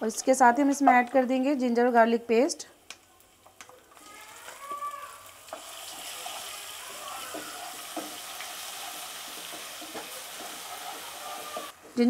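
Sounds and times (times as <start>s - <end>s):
paste sizzling in hot oil: 2.8s - 12.0s
spatula knocking on pan: 7.3s - 8.3s, 9.2s - 11.7s.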